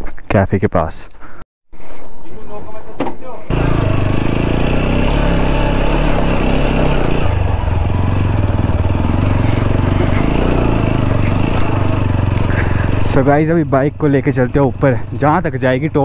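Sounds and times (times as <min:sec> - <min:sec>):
motorcycle engine running: 0:03.5 - 0:16.0.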